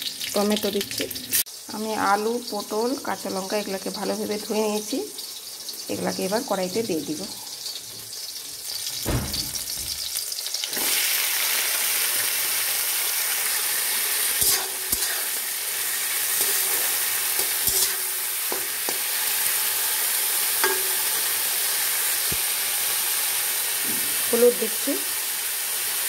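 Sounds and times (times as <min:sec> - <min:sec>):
vegetables sizzling in hot oil: 0:00.0 - 0:26.0
spatula scraping wok: 0:14.3 - 0:19.6.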